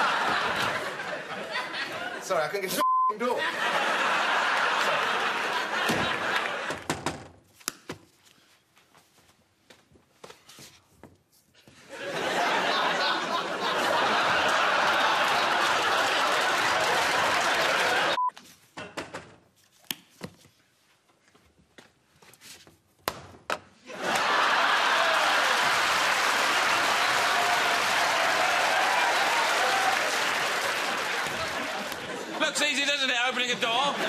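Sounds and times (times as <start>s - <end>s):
studio audience laughing: 0.0s - 6.8s, 11.9s - 18.2s, 23.9s - 34.0s
audience applauding: 3.6s - 6.8s, 12.2s - 18.2s, 24.0s - 34.0s.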